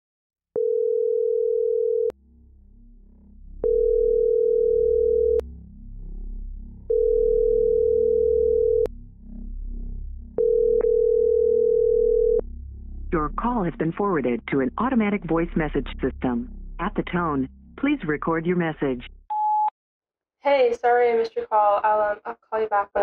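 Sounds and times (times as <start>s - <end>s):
telephone ringback tone: 0.6s - 2.1s, 3.6s - 5.4s, 6.9s - 8.9s, 10.4s - 12.4s
low background music: 2.7s - 19.2s.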